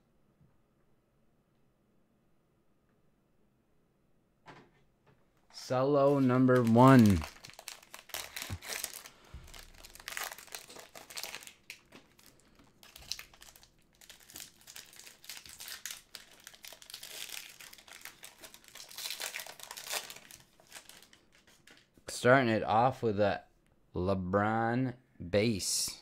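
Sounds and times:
card pack wrapper crinkling: 6.0 - 22.0.

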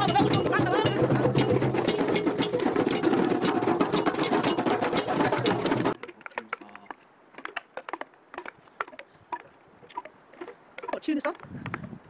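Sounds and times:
group hand drumming on djembes: 0.0 - 6.6.

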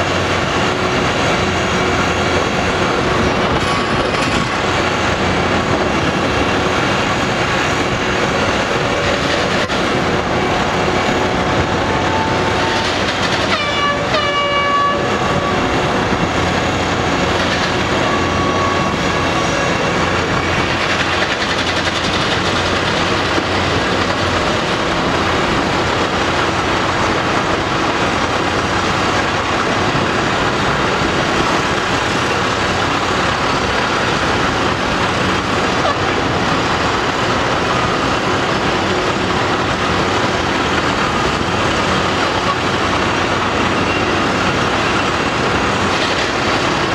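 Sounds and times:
excavator engine and hydraulics: 0.0 - 46.9
horn sounding: 11.6 - 16.1, 17.8 - 20.6.

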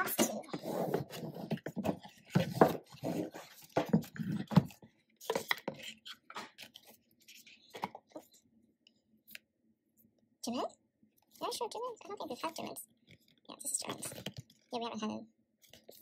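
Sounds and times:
card and paper rustling: 0.0 - 8.4, 12.3 - 14.7, 15.6 - 16.0.

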